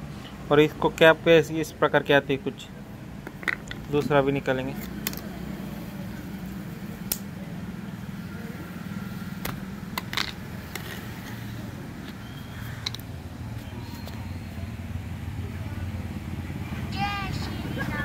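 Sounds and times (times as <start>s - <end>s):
plastic clicks: 12.8s - 13.1s.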